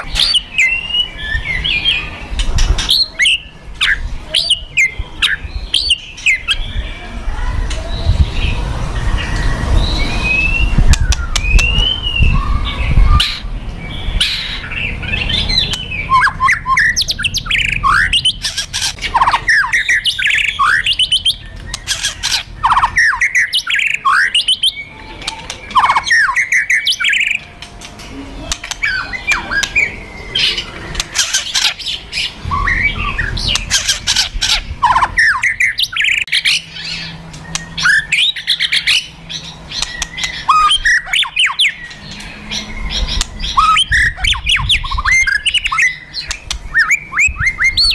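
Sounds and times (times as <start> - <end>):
bird downward-sliding whistles: 9.2 - 13.4.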